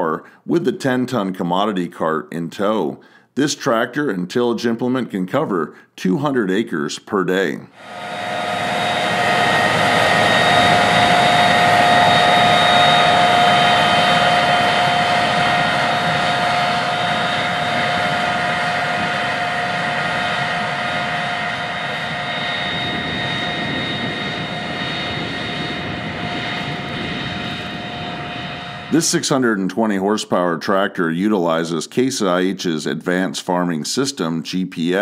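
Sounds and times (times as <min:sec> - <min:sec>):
steady high whine: 0:07.8 - 0:29.7.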